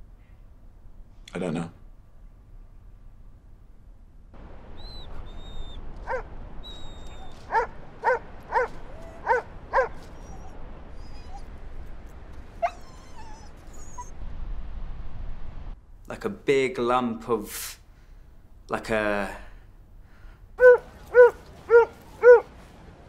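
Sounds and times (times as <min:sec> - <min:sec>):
dog yipping: 0:04.8 - 0:11.5, 0:12.6 - 0:14.1, 0:20.6 - 0:22.5.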